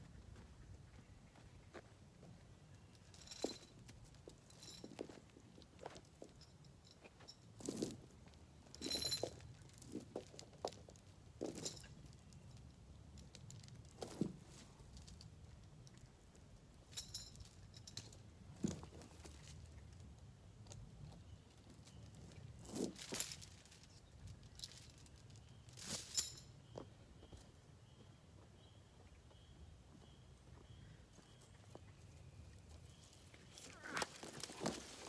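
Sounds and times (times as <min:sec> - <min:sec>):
steel chain clinking and rattling: 0:02.7 - 0:26.8.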